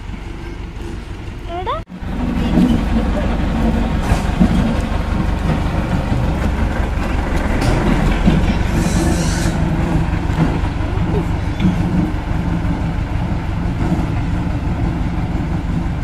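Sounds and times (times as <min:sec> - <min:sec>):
road roller diesel engine: 0:00.0 - 0:16.0.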